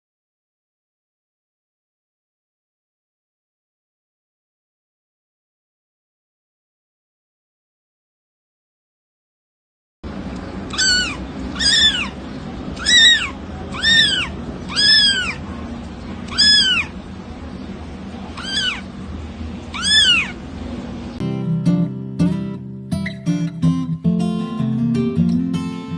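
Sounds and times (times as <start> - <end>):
cat meowing: 10.7 - 12.2, 12.8 - 15.5, 16.2 - 17.0, 18.3 - 18.9, 19.7 - 20.4.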